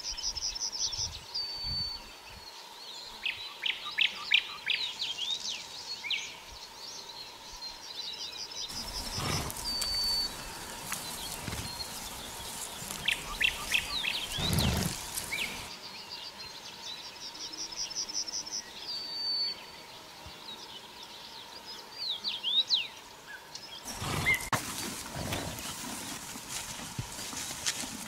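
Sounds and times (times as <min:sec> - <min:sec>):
small birds chirping: 0:00.0 - 0:17.8, 0:19.4 - 0:28.0
horses grazing and stepping in grass: 0:08.7 - 0:15.7, 0:23.8 - 0:28.0.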